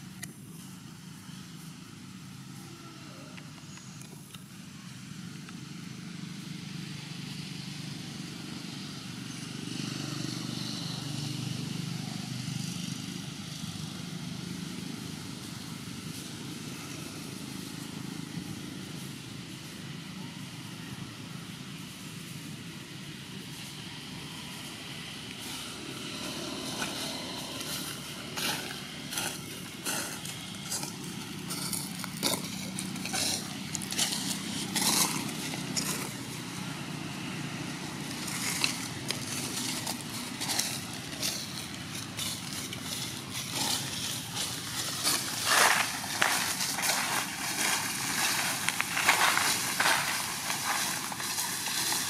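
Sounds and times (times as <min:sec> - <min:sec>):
irregular crackling and rustling: 0:38.0 - 0:52.0.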